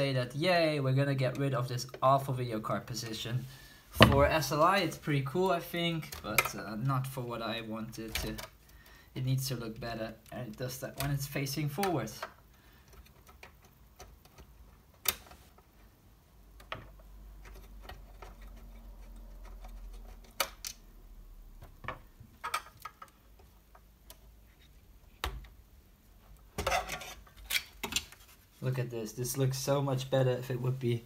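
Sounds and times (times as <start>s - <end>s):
sharp clicks and light knocks: 8.0s - 8.7s, 9.7s - 15.7s, 16.5s - 20.9s, 21.6s - 25.6s.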